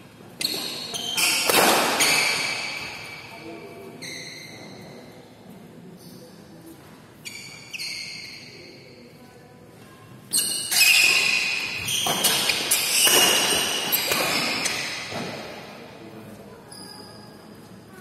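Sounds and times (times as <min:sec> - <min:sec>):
racket striking shuttlecock: 0:01.3 - 0:02.3, 0:11.8 - 0:15.2.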